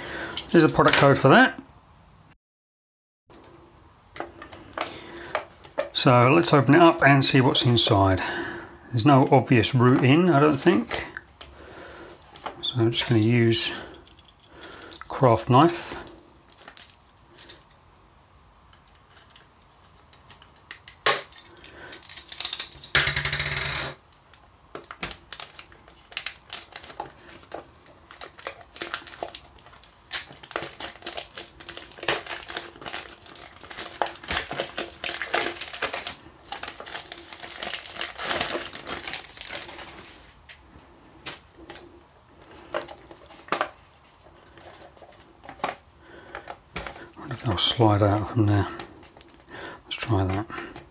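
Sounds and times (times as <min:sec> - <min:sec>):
cellophane crinkling: 0:24.2 - 0:40.6, 0:41.2 - 0:50.9
knife slitting shrink-wrap: 0:24.8 - 0:40.3.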